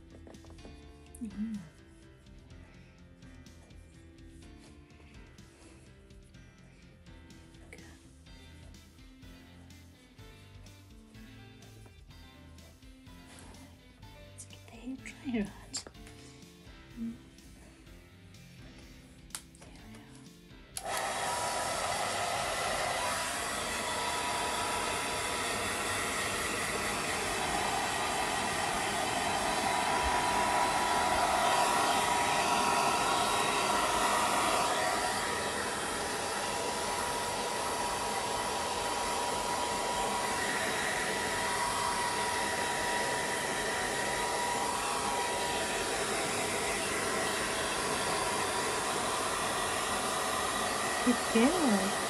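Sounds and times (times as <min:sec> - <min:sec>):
hair dryer blowing: 0:20.8 - 0:52.0.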